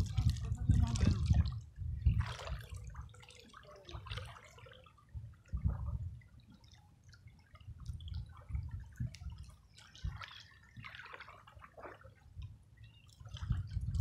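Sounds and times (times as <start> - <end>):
wind rumble on microphone: 0.0 - 3.2, 5.0 - 6.6, 7.2 - 10.9, 13.2 - 14.0
small waves lapping on shore: 0.0 - 14.0.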